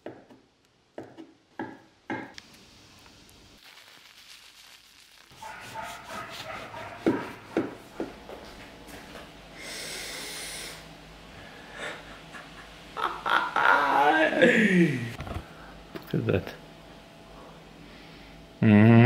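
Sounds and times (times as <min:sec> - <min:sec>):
knife sawing through crusty bread: 0:05.4 - 0:07.2
person sniffing: 0:09.6 - 0:10.9.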